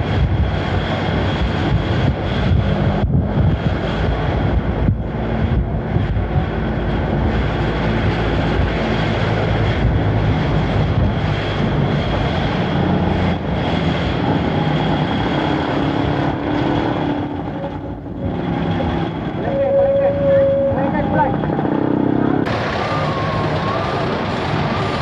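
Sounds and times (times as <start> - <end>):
engine drone: 0.0 - 25.0
thin high tone: 19.4 - 21.4.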